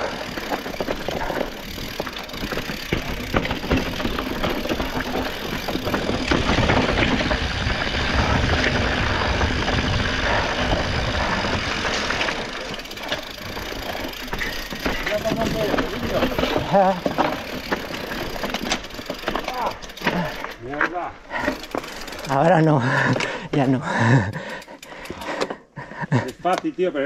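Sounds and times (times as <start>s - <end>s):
mountain bike rattling: 0.0s - 27.0s.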